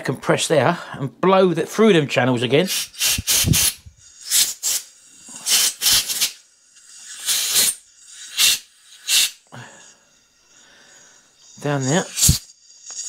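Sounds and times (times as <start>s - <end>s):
compressed air blow gun hissing: 2.6s - 13.0s.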